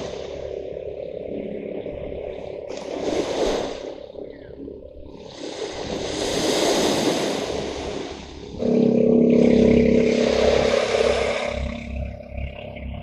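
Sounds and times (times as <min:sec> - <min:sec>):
small waves washing on sand: 0:00.0 - 0:00.4, 0:02.7 - 0:04.0, 0:05.2 - 0:09.4
motorboat engine drone: 0:00.0 - 0:13.0.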